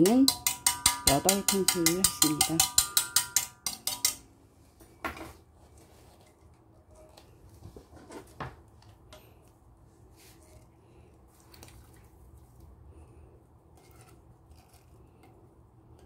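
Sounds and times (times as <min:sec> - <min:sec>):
steel pot clinking against bowl: 0:00.0 - 0:04.3.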